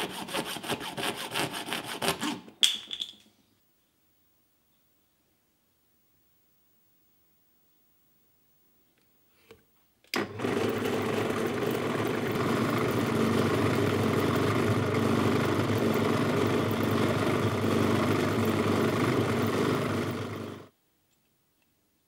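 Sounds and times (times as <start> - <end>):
drill press motor humming: 10.2 - 20.7.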